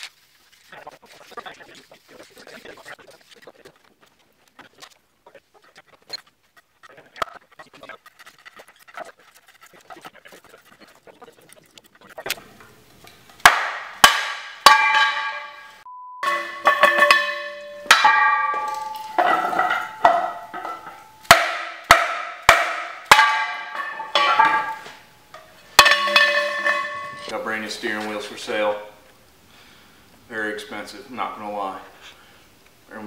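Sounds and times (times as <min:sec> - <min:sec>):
mallet striking ringing metal rim: 0:13.5 - 0:27.4.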